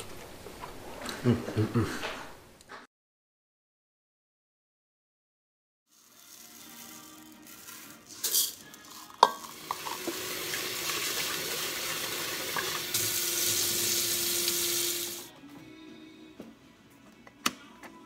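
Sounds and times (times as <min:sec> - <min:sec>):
faint background music: 0:05.9 - 0:12.7, 0:14.0 - 0:18.0
faucet running water: 0:09.1 - 0:15.3.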